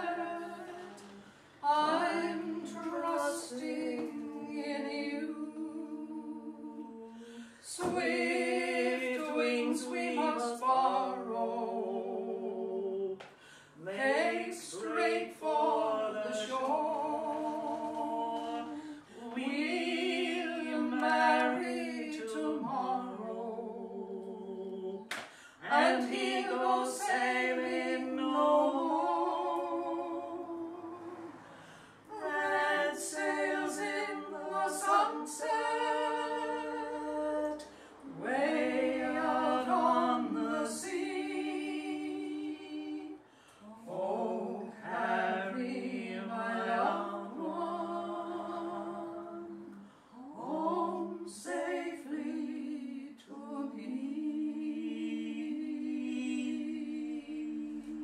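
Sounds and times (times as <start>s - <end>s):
unaccompanied voices singing: 0.0s - 58.0s.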